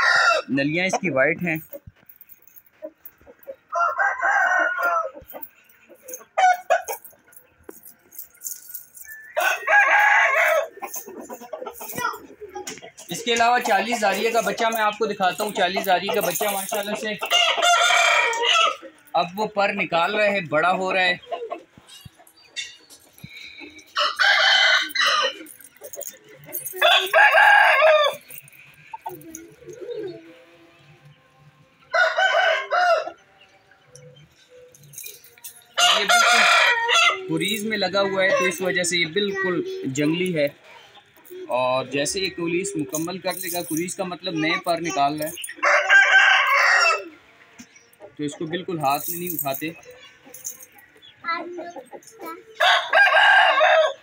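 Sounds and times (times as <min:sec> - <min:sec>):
rooster crowing: 0:00.0 - 0:00.5, 0:03.7 - 0:05.2, 0:09.4 - 0:10.7, 0:17.3 - 0:18.8, 0:24.0 - 0:25.5, 0:26.8 - 0:28.2, 0:31.9 - 0:33.2, 0:35.8 - 0:37.3, 0:45.6 - 0:47.2, 0:52.6 - 0:54.0
roosters crowing: 0:00.0 - 0:00.9, 0:01.6 - 0:12.3, 0:13.0 - 0:39.1, 0:45.2 - 0:47.6, 0:52.6 - 0:54.0.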